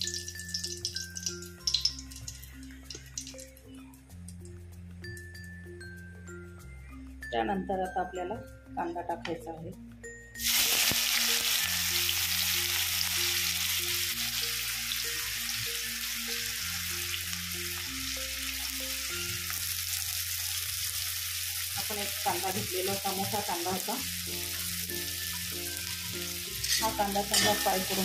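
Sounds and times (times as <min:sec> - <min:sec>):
onion sizzling in hot oil: 0:00.0 - 0:03.5, 0:10.4 - 0:28.0.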